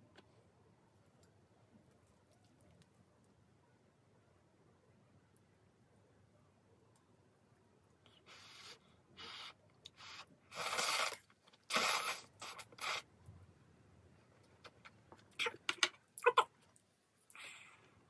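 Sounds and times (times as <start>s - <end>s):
noodles being slurped: 8.4s - 13.1s.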